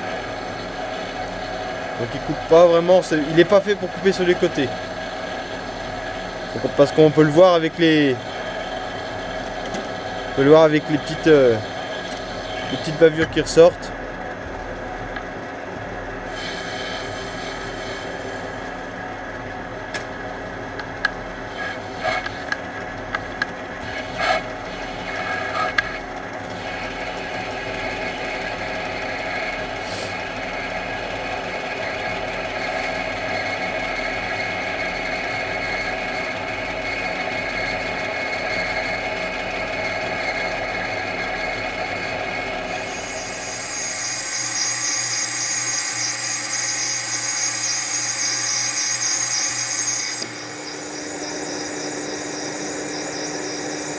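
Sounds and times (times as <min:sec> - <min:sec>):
metal lathe running: 0:00.0 - 0:13.7, 0:31.8 - 0:53.9
high hissing cutting sound: 0:42.7 - 0:53.9.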